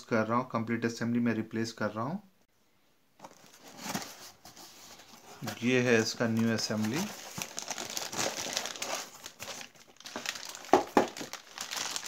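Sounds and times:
plastic bag crinkling: 5.5s - 12.0s.

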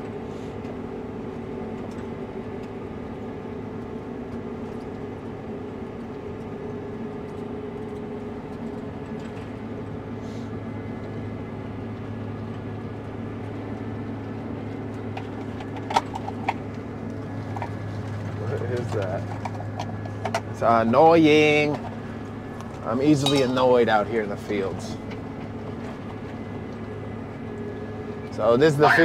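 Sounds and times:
diesel engine humming drone: 0.0s - 29.0s.

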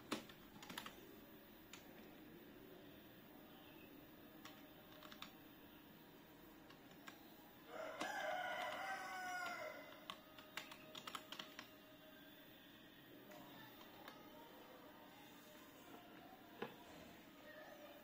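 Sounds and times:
keyboard keys clicking: 0.0s - 1.0s, 4.4s - 5.4s, 6.6s - 7.2s, 9.4s - 11.7s.

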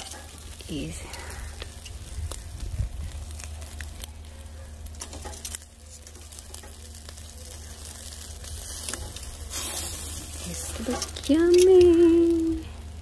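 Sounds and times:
fish sizzling on charcoal grill: 0.0s - 13.0s
sharp crackles: 0.0s - 13.0s
low rumble: 0.1s - 5.0s.

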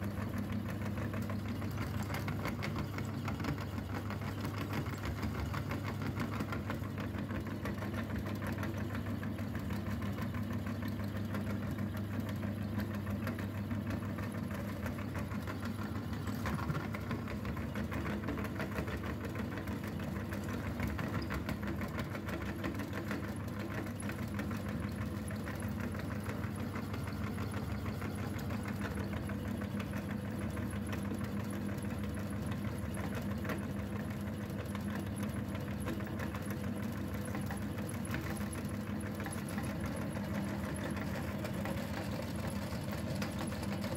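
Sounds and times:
low motor hum: 11.4s - 22.6s.

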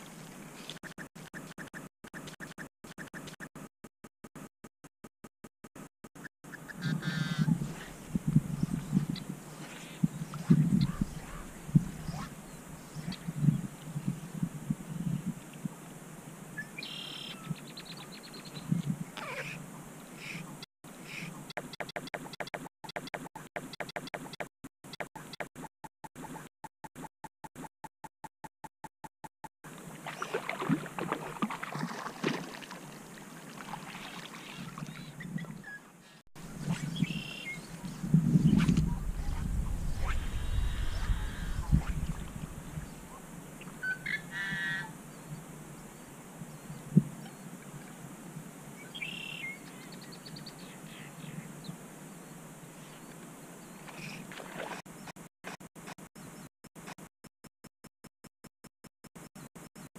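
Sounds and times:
birds calling: 6.5s - 13.6s, 33.6s - 45.5s
low steady wind: 6.6s - 21.5s, 29.7s - 54.6s
water noise: 6.7s - 17.6s, 29.7s - 35.7s, 36.4s - 48.2s, 53.8s - 54.8s
wind buffeting microphone: 6.8s - 15.8s, 36.4s - 43.9s
water splashing from thrashing fish: 30.0s - 34.8s.

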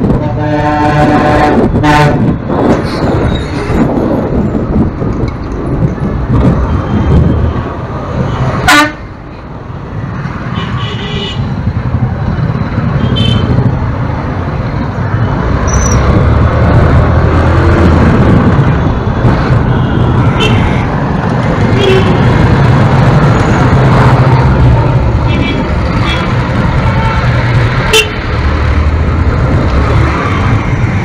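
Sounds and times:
engine and wind rumble: 0.0s - 31.0s
vehicle horn beeping: 8.7s - 9.0s, 13.0s - 13.6s, 21.8s - 22.3s.

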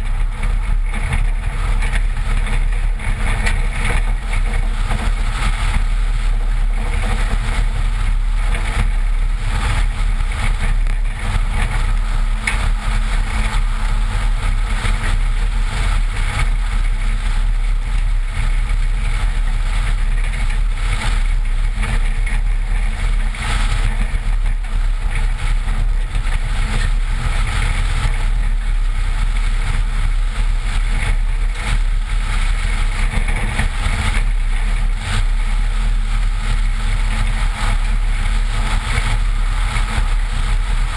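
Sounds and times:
engine running: 0.0s - 40.9s
tyre and road noise: 0.0s - 40.9s.

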